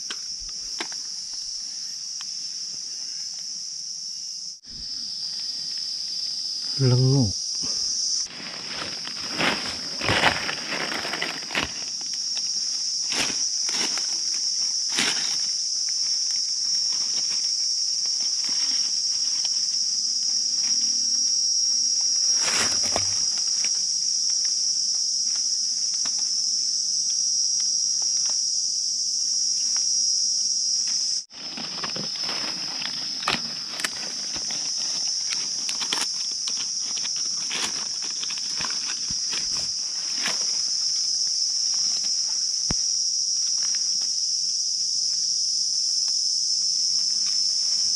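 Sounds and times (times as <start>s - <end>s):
insects droning: 0.0s - 47.9s
footsteps in dry leaves: 8.0s - 19.9s, 31.3s - 42.5s.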